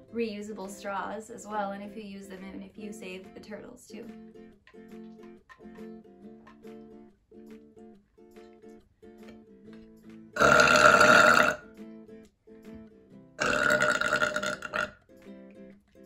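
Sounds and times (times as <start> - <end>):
soft plucked guitar music: 0.0 - 16.0
woman burping loudly: 10.4 - 11.7, 13.4 - 15.0.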